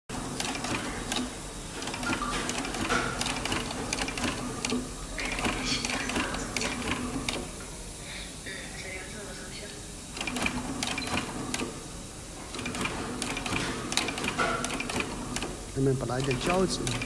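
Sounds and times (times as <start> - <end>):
sewing machine motor hum: 0.1 - 7.7, 10.1 - 17.0
sewing machine needle clatter: 12.5 - 15.6.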